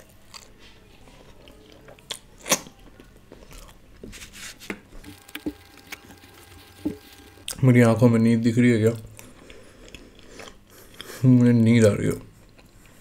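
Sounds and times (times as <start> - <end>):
chewing and mouth sounds: 0.0 - 3.8, 8.9 - 11.2, 12.1 - 13.0.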